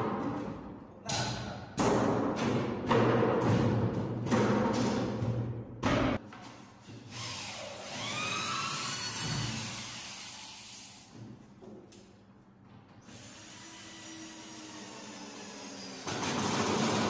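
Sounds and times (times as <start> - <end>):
electric drill driving screws: 7.1 - 11.0, 13.1 - 17.0.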